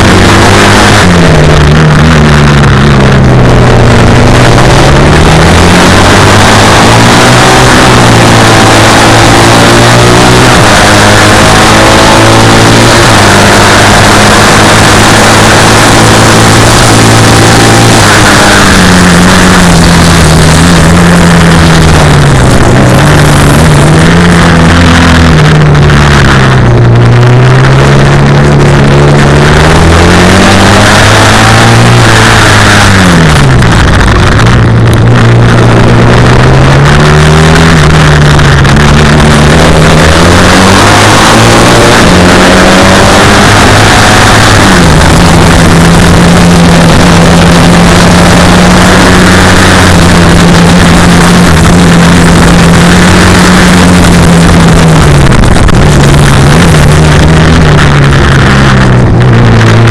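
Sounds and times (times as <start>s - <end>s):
racing engine revving: 0.0s - 59.9s.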